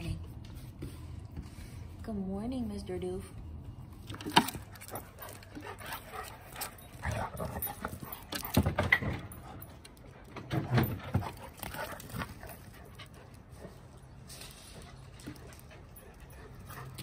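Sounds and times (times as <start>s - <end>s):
dogs playing rough: 4.0s - 17.0s.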